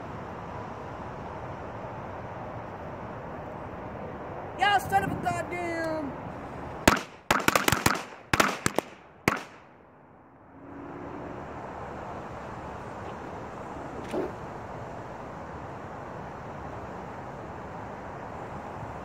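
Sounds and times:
firecrackers banging: 6.8 - 9.7.

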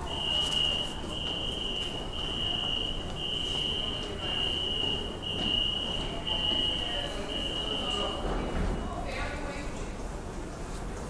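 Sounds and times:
electronic alarm beeping: 0.0 - 8.2
station background noise: 0.0 - 11.0.

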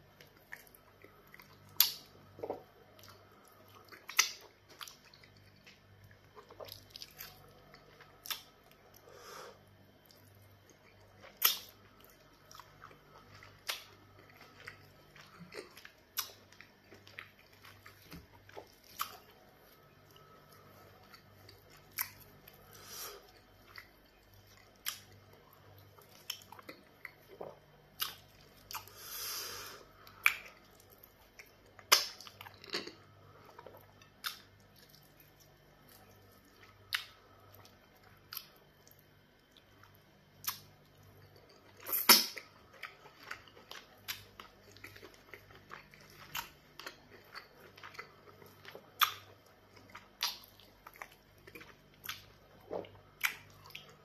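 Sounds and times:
wet chewing and lip smacks: 33.6 - 54.0.

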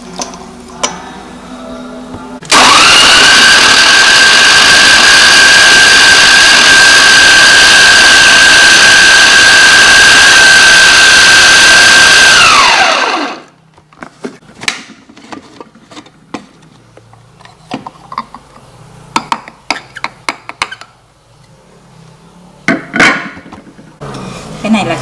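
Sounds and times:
electric food chopper whining: 2.4 - 13.6.

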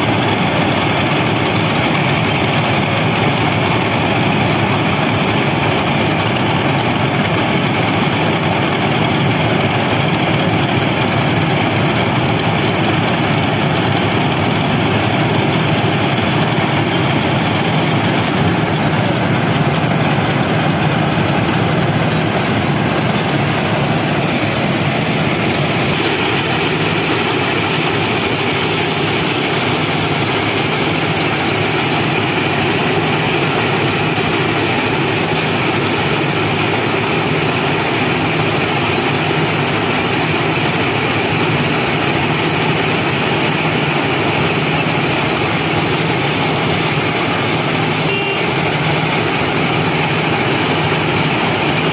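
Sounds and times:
ballast cleaning machine running: 0.0 - 51.9.

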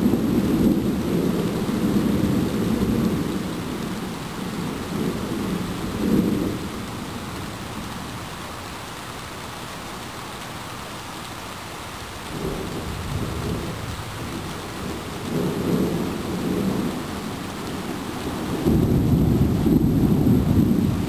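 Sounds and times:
thunder rumbling: 0.0 - 8.0, 12.2 - 21.0
steady rain: 0.0 - 21.0.

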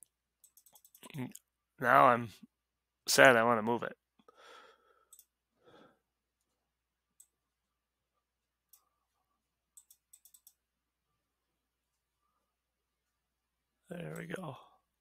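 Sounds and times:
computer mouse clicks: 0.0 - 1.5, 5.1 - 5.4, 7.2 - 7.4, 9.7 - 10.6
soft breathy sounds: 4.2 - 6.2.

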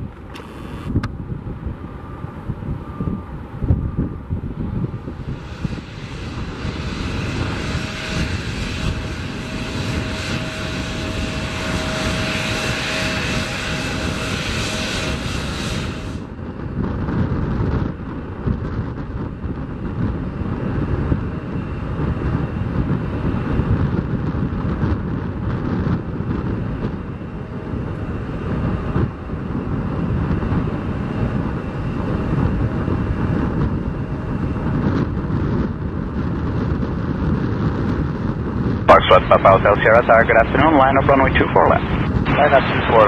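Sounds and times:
distant jet engines: 0.0 - 43.0
wind buffeting microphone: 0.0 - 43.0.

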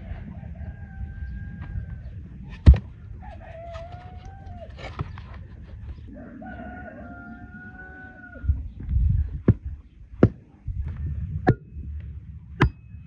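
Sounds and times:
rooster crowing: 0.0 - 2.1, 3.0 - 4.9, 6.1 - 8.5.

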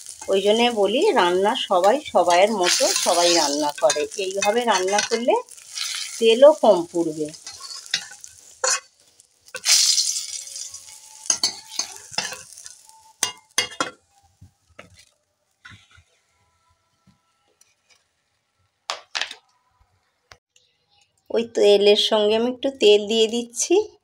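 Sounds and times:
metal spatula scraping and clinking: 0.0 - 14.0
oil sizzling: 0.0 - 16.2.

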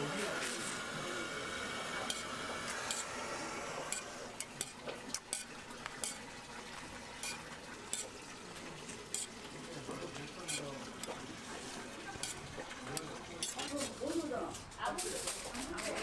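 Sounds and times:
tongs clicking on metal griddle: 3.9 - 6.2, 7.2 - 8.1, 9.1 - 9.3, 10.4 - 11.2, 12.2 - 13.7
food sizzling on a griddle: 7.2 - 14.2.

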